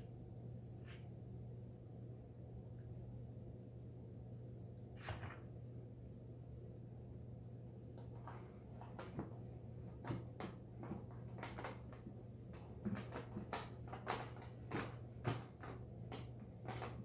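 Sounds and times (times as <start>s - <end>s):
steady low hum: 0.0s - 12.9s
paper strips rustling and clicking: 10.0s - 17.0s.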